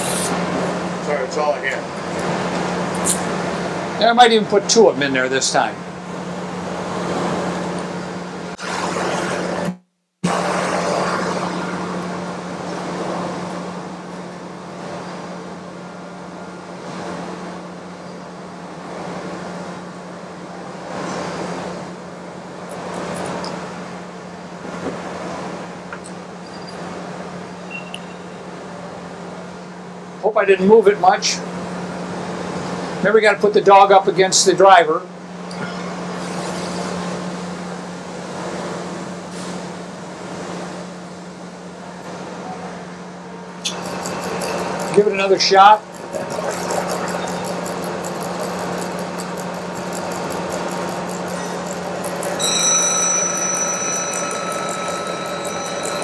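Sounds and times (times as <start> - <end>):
grinder motor hum: 43.6 - 56.0
grinding wheel hissing on steel: 43.6 - 56.0.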